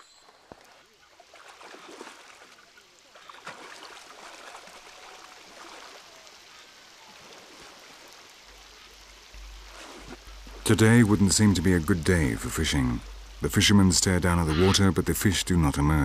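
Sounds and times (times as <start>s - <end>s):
river water splashing: 0.0s - 16.0s.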